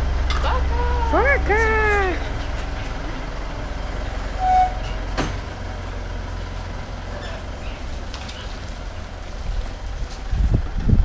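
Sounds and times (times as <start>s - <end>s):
pickup truck engine rumbling: 0.0s - 11.0s
short beep: 4.3s - 4.9s.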